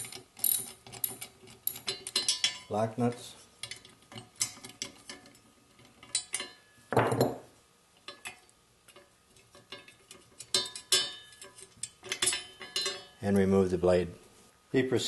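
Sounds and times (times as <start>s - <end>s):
ratchet wrench and nuts clinking: 0.0s - 2.8s, 9.6s - 13.5s.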